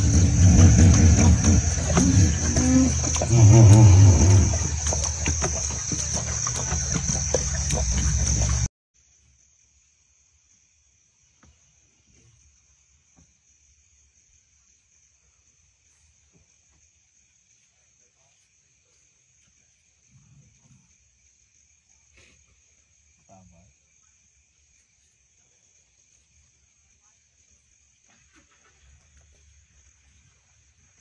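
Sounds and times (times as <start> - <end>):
low rumble: 0.0 - 5.6
lions lapping water: 0.0 - 8.7
crickets chirping: 0.0 - 31.0.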